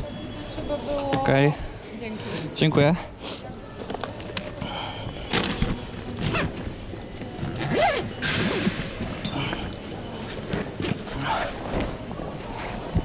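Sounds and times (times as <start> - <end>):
bag rustling: 5.2 - 9.2
zipper zipping: 7.6 - 8.7.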